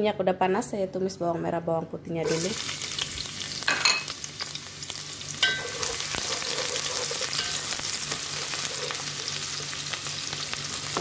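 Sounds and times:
shallots sizzling in hot oil: 2.2s - 11.0s
wooden spoon stirring: 5.4s - 9.7s.

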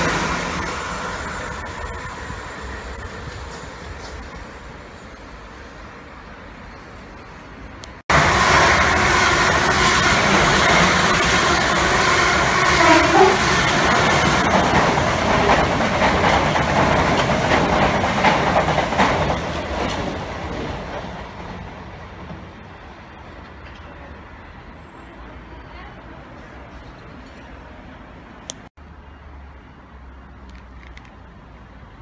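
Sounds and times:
trains rushing past: 0.0s - 28.5s
wheels clicking on rail joints: 9.6s - 22.6s.

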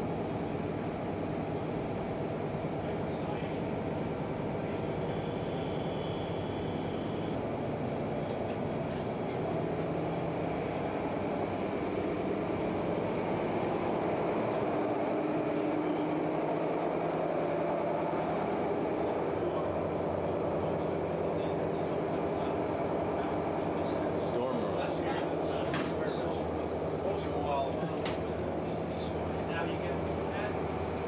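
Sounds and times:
machinery drone: 2.7s - 8.9s.

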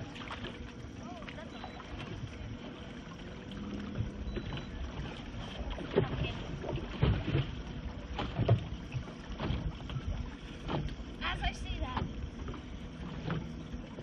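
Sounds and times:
water lapping against boat: 0.0s - 14.0s.

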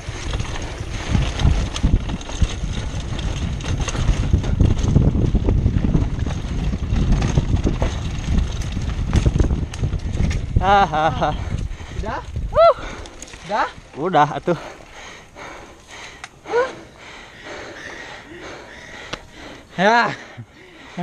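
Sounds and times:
wind noise on microphone: 0.0s - 15.6s
bike jolts over bumps: 0.0s - 21.0s
bike rattling on rough trail: 0.0s - 21.0s.

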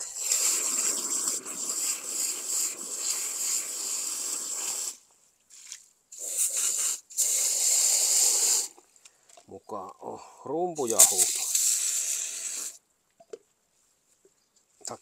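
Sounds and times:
hose spraying water: 0.0s - 8.8s, 10.8s - 12.8s.

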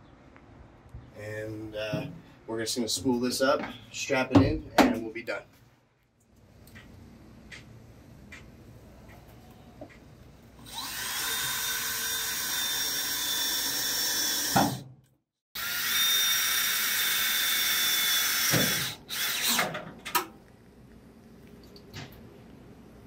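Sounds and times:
cordless drill whining: 10.6s - 14.8s, 15.6s - 19.6s.

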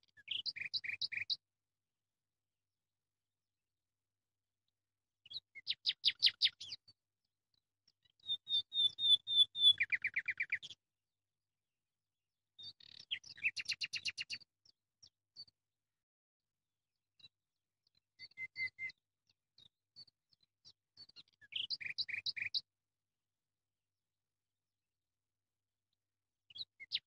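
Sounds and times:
songbird singing: 0.0s - 1.4s, 5.3s - 6.9s, 8.0s - 10.8s, 12.6s - 15.6s, 17.9s - 19.0s, 21.0s - 22.7s, 26.5s - 27.0s.

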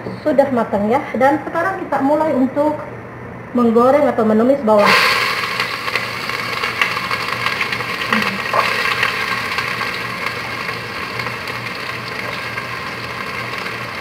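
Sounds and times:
onions sizzling in hot oil: 4.8s - 14.0s.

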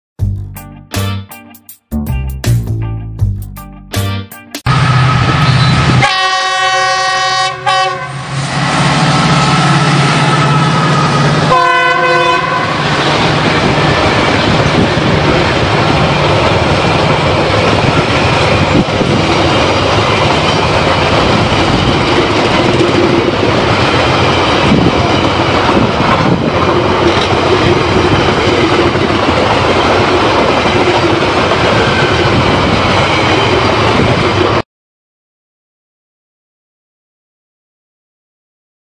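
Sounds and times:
locomotive horn blasts: 4.7s - 8.3s, 10.0s - 13.0s
train wheels clattering on rails: 13.0s - 34.6s.

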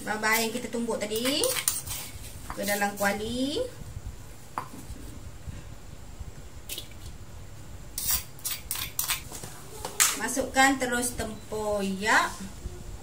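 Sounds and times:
utensil scraping a metal wok: 0.3s - 3.1s, 8.0s - 9.2s.

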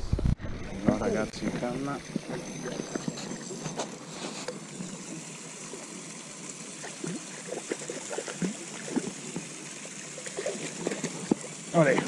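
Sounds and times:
water trickling and gurgling: 0.5s - 12.0s
water plops and splashes: 6.8s - 9.5s, 10.2s - 12.0s.

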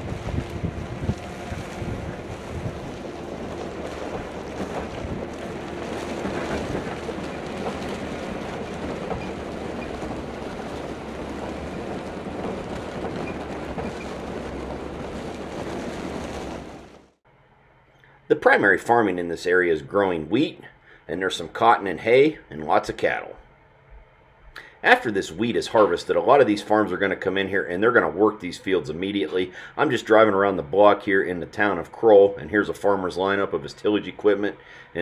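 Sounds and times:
wind noise on microphone: 0.0s - 17.1s.

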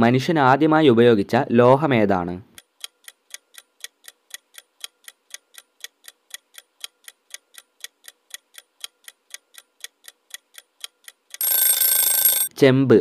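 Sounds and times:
clock ticking: 2.5s - 12.5s.

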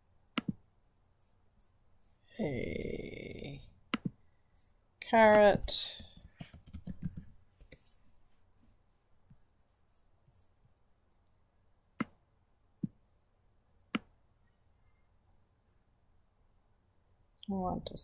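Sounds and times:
computer mouse clicks: 5.3s - 7.9s.

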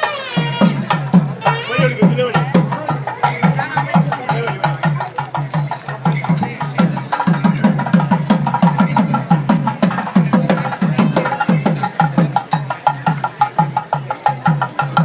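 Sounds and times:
fast drum strokes: 0.0s - 15.0s.

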